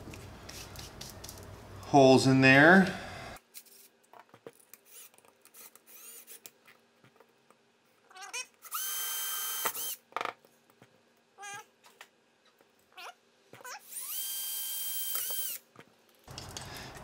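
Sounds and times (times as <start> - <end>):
cordless drill motor whining: 4.9 - 6.4, 8.6 - 10.0, 13.8 - 15.6.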